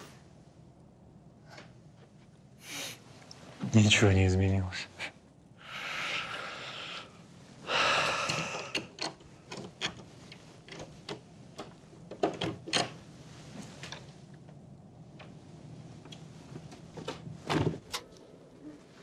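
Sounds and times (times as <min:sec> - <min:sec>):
short breathy hiss: 0:02.6 - 0:03.0.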